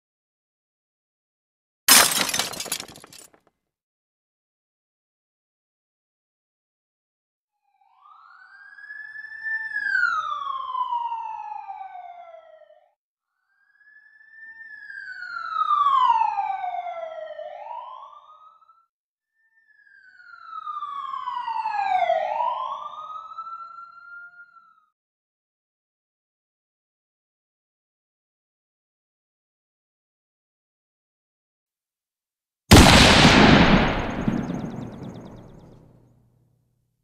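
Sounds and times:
siren wailing: 7.7 - 12.9, 13.5 - 18.9, 19.5 - 24.9.

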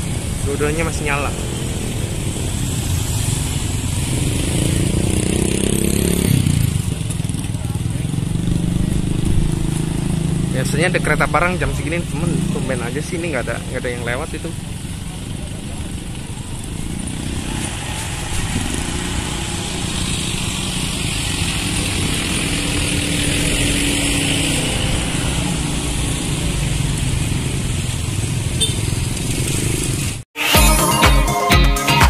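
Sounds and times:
motorcycle engines idling: 0.0 - 24.4
street traffic: 0.0 - 30.4.

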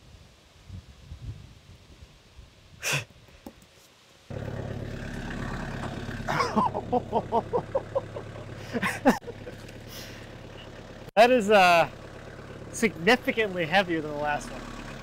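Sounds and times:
loader engine idling: 4.3 - 15.0.

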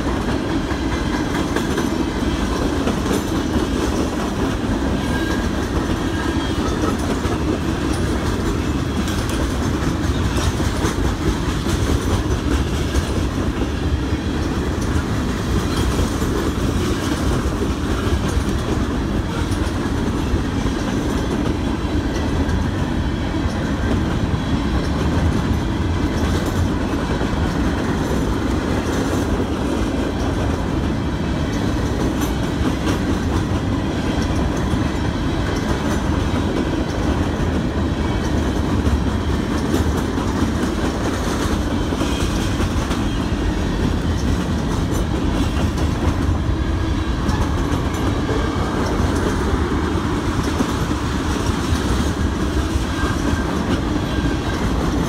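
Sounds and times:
freight train rumble: 0.0 - 55.0
wheels clacking over rails: 0.0 - 55.0.

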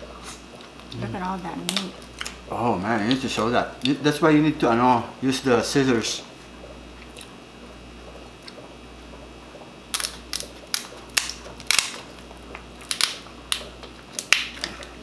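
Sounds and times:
scissors cracking lobster shell: 9.9 - 14.9.

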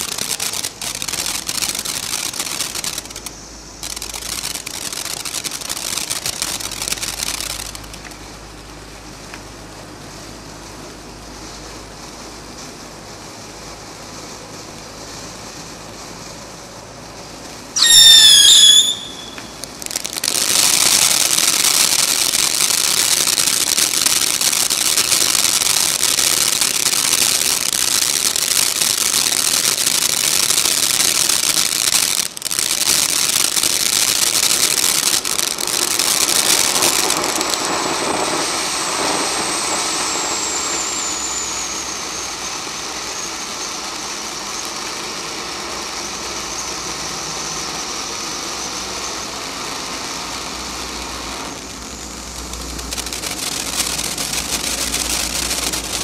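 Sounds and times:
firework fountain hissing: 0.0 - 56.0
thin high whistle sliding down: 17.8 - 19.6, 38.2 - 44.6.

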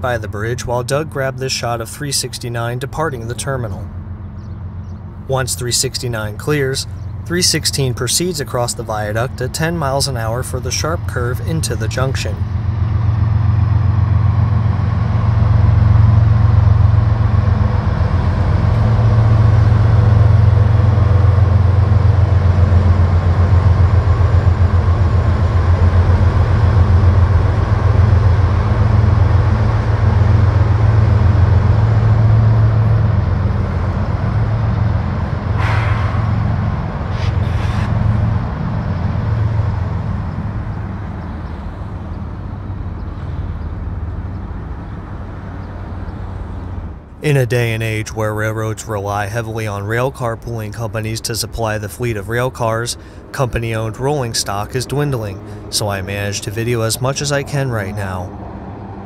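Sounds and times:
deep diesel locomotive drone: 0.0 - 59.0
short sharp bursts of noise: 35.6 - 36.4, 37.0 - 38.0.

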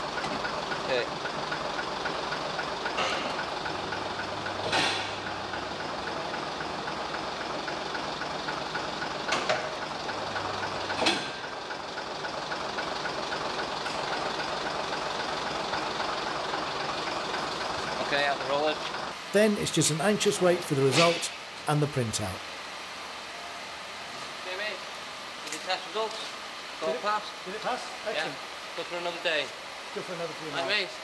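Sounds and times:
bus diesel idling drone: 0.0 - 24.1.

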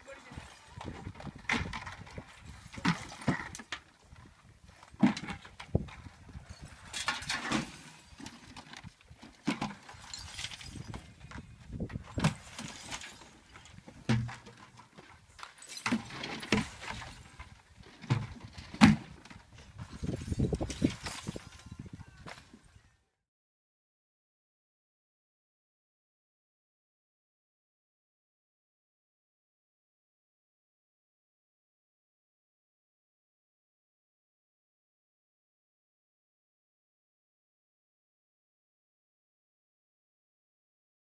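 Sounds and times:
glass and trash crashing into dumpster: 6.6 - 8.2, 9.8 - 11.0, 12.2 - 13.7, 20.0 - 21.7.

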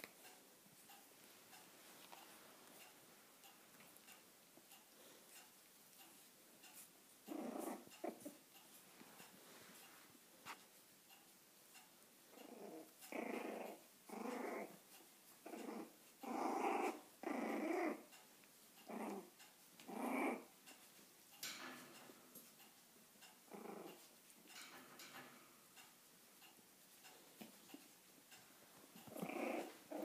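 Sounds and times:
puppies growling: 7.2 - 8.4, 12.3 - 18.1, 18.8 - 20.6, 23.4 - 24.5, 28.9 - 30.0.

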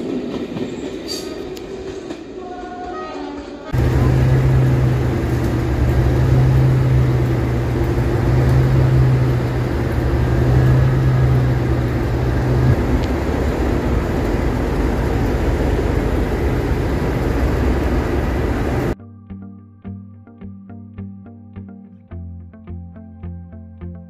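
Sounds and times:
diesel locomotive engine drone: 3.4 - 19.0
strong low hum: 3.8 - 19.0.

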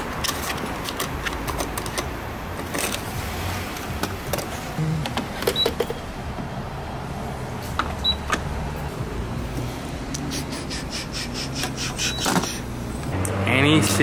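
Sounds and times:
fuel pump beeps: 5.5 - 5.9, 8.0 - 8.3, 11.6 - 12.7.

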